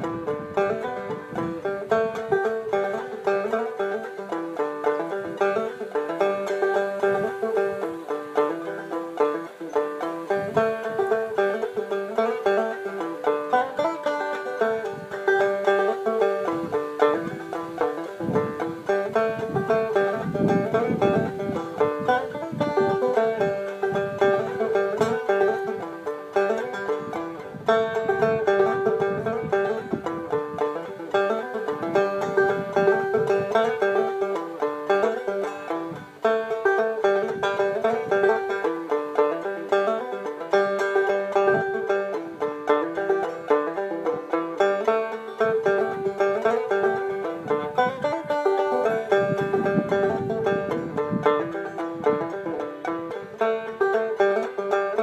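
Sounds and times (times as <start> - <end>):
banjo plucked notes: 0.0 - 55.0.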